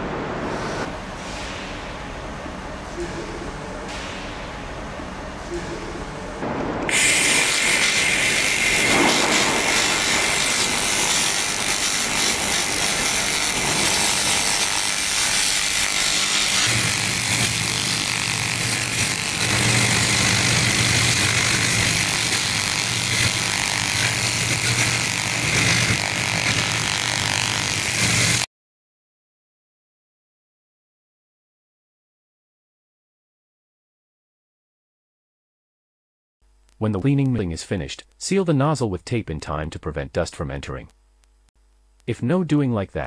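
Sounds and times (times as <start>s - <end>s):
laser cleaner hissing and whining: 6.9s - 28.5s.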